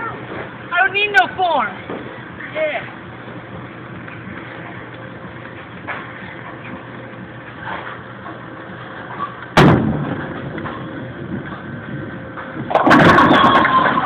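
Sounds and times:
bowling ball rolling rumble: 0:03.1 - 0:14.0
bowling pins clattering: 0:09.2 - 0:14.0.

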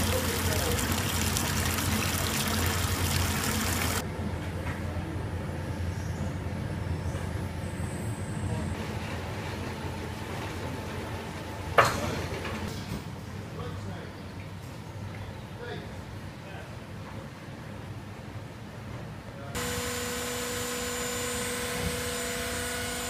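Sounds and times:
juice pouring and splashing: 0:00.0 - 0:04.0.

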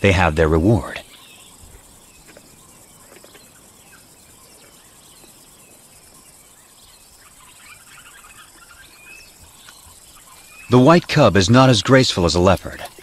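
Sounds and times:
steady high hiss: 0:00.0 - 0:13.0
small bird chirps: 0:00.8 - 0:10.9.

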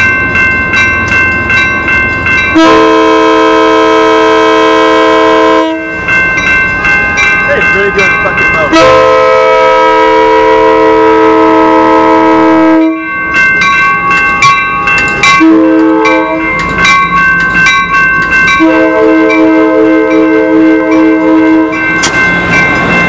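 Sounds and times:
train air horn chord: 0:02.5 - 0:05.9, 0:08.7 - 0:13.0, 0:15.4 - 0:16.4, 0:18.6 - 0:21.8
train wheels clacking on rails: 0:06.0 - 0:09.0, 0:13.2 - 0:23.0.

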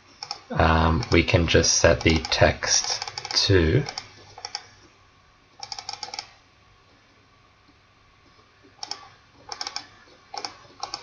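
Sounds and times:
keyboard and mouse clicking: 0:01.0 - 0:01.2, 0:02.0 - 0:04.7, 0:05.6 - 0:06.4, 0:08.8 - 0:11.0.

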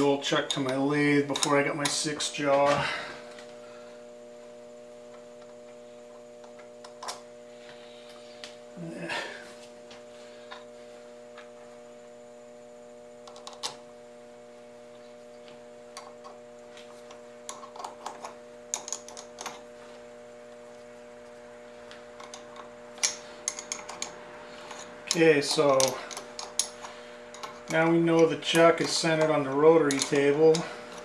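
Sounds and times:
electrical hum: 0:00.0 - 0:31.0.

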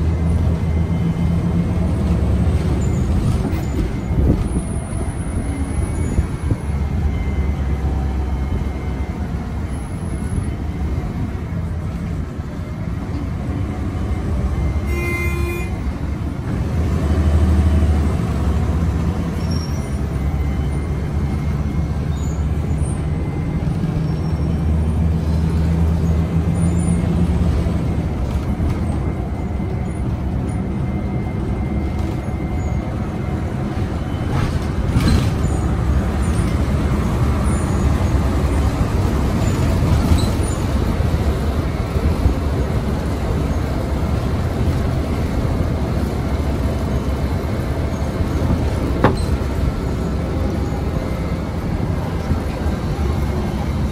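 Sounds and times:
bus engine drone: 0:00.0 - 0:53.9
road noise: 0:00.0 - 0:53.9.

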